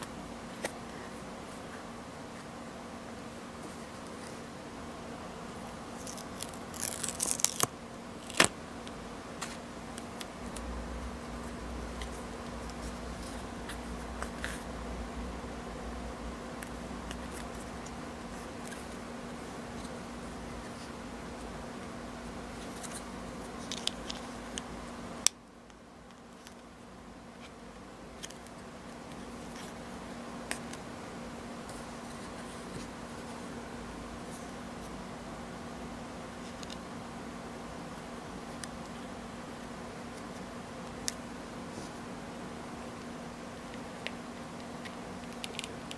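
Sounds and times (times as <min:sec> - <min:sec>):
paper crackling: 0:06.0 - 0:08.6
low hum: 0:10.2 - 0:23.6.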